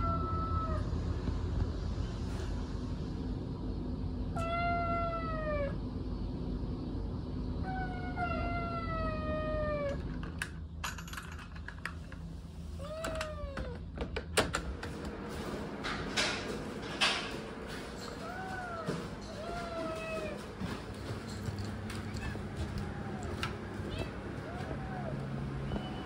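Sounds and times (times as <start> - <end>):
steady low hum: 0.0 - 26.0
cat meowing: 4.4 - 5.8, 18.2 - 20.4, 22.1 - 26.0.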